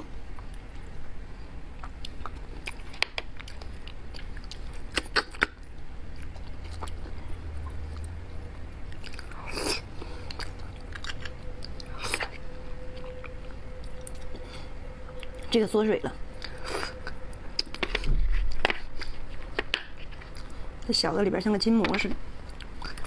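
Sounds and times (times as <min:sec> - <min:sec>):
chewing and mouth sounds: 0:01.7 - 0:14.5, 0:22.4 - 0:23.0.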